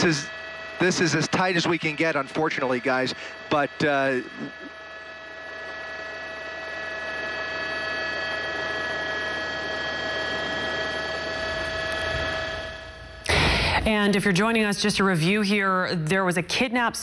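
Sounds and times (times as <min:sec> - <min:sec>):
mechanical hum: 0:00.0 - 0:17.0.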